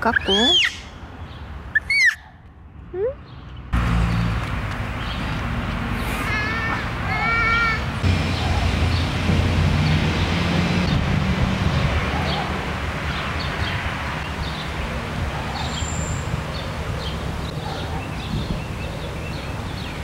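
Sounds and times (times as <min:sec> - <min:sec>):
small birds chirping: 0:00.0 - 0:02.3, 0:13.1 - 0:20.0
wind rumble on microphone: 0:08.0 - 0:20.0.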